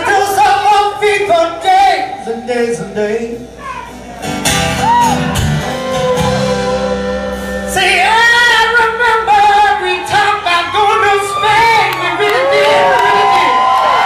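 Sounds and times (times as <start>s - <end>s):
man singing: 0.0s - 4.0s, 6.0s - 13.3s
acoustic guitar strumming: 0.0s - 10.9s.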